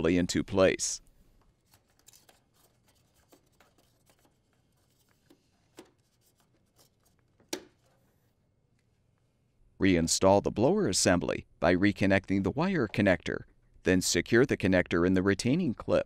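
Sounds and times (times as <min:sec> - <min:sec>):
plastic parts clicking and rubbing: 0:01.4 - 0:08.0.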